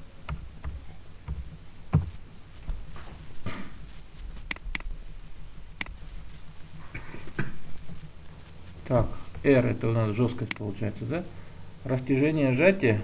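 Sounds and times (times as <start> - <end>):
mouse clicks: 4.5 - 4.9, 10.5 - 10.7.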